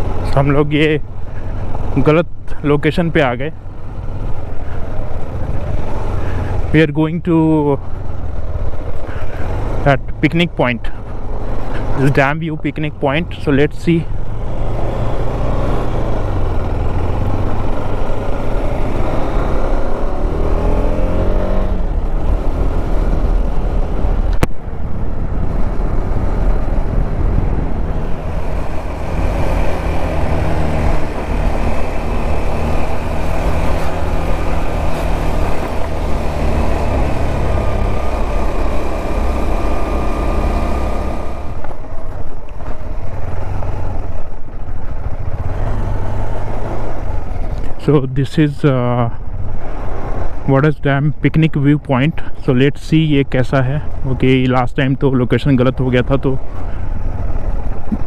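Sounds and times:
motorcycle engine running: 11.0 - 47.8
wind rumble on microphone: 21.6 - 38.8, 56.4 - 58.0.

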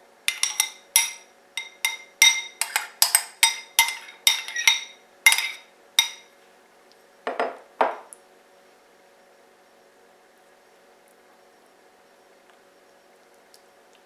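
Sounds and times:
metal spoon clinking on glass bowl: 0.3 - 6.3.

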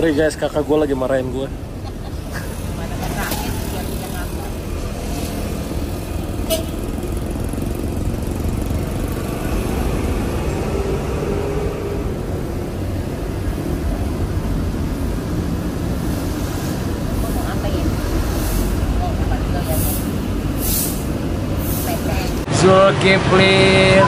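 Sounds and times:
street traffic rumble: 0.0 - 24.0.

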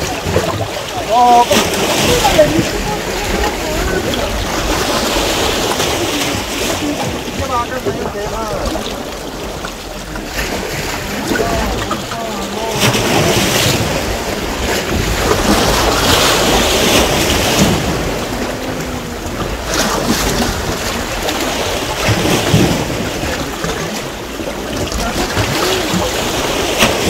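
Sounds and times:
waves washing against rocks: 0.0 - 27.0.

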